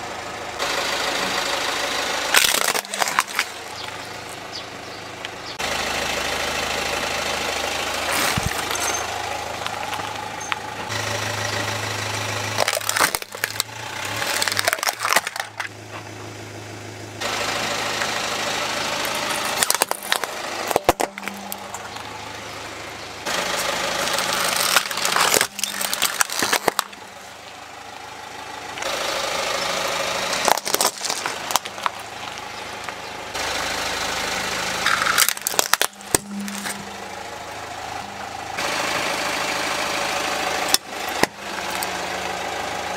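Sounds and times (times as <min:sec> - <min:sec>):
car engine idling: 0:00.0 - 0:42.9
tyre crushing plastic toys: 0:02.3 - 0:04.5, 0:08.0 - 0:10.9, 0:12.5 - 0:15.8, 0:19.1 - 0:22.2, 0:23.3 - 0:27.2, 0:30.3 - 0:33.0, 0:34.8 - 0:36.9.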